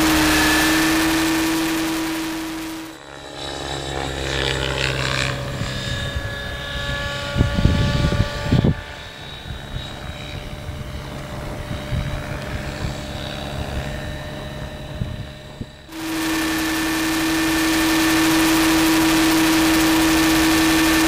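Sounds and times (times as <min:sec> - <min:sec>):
model helicopter rotor whine: 0:00.0 - 0:21.0.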